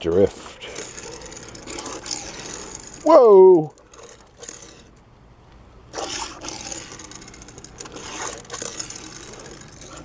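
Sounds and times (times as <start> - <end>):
toy truck wheels scraping on table: 0.6 - 3.0, 3.8 - 4.9, 6.0 - 10.0.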